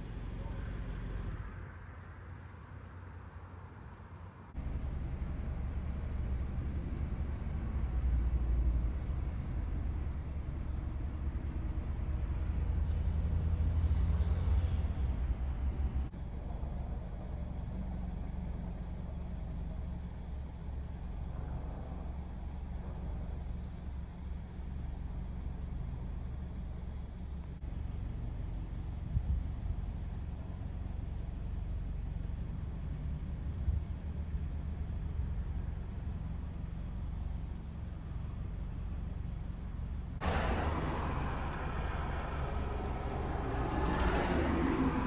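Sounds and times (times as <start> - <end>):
low rumble: 40.2 - 45.0.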